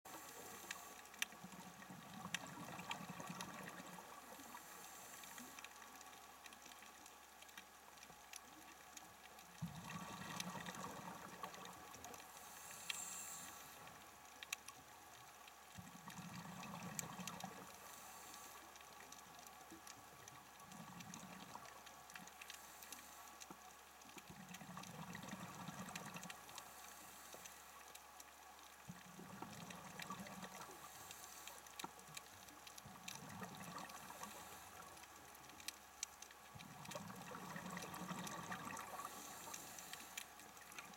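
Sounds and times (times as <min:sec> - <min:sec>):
exhaled bubbles underwater: 0:01.4 - 0:04.5, 0:09.6 - 0:11.8, 0:15.8 - 0:17.7, 0:24.3 - 0:26.4, 0:28.8 - 0:30.8, 0:32.8 - 0:34.6, 0:36.5 - 0:39.6.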